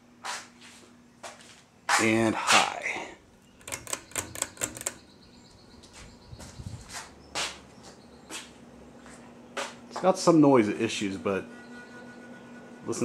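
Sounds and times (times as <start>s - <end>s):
ceiling fan motor hum: 0.0s - 13.0s
pull chain rattling: 3.6s - 5.1s.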